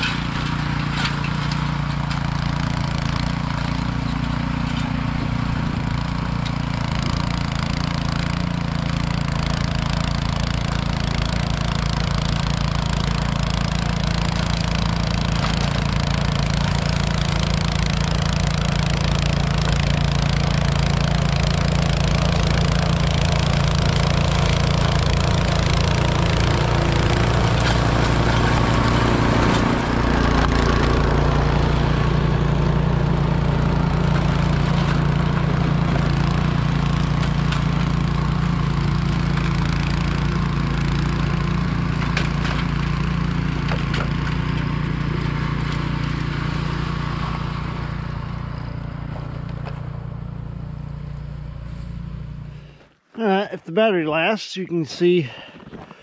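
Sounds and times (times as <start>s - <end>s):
snow thrower engine running: 0.0s - 56.0s.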